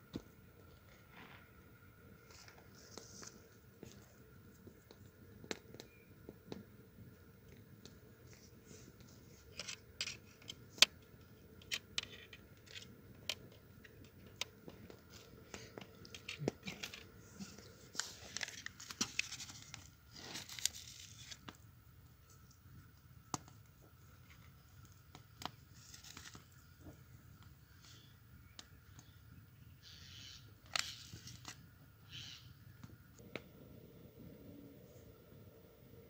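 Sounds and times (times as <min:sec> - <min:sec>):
paper packet rustling: 0:15.1 - 0:21.4.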